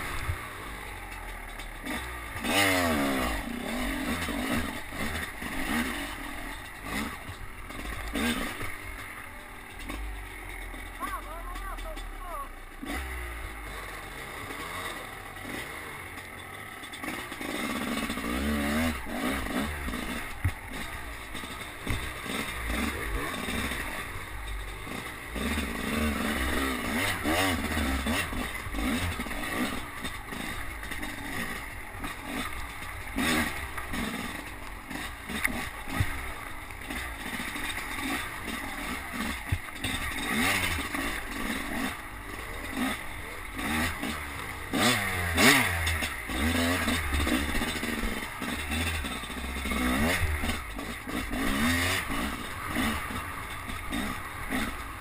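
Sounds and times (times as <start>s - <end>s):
dirt bike engine revving: 0.0s - 55.0s
bike knocking on roots: 15.4s - 54.7s.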